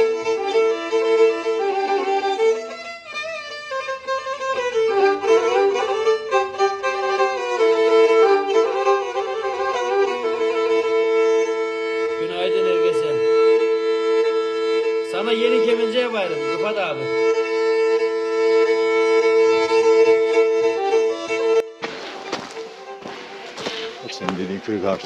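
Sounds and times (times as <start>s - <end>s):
fiddle melody over drone: 0.0s - 25.0s.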